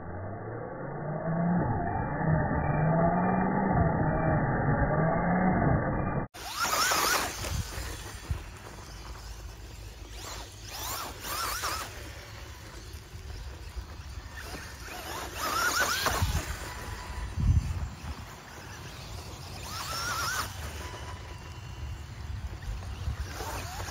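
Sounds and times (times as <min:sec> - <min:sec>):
electric motor whining: 0:01.0 - 0:23.9.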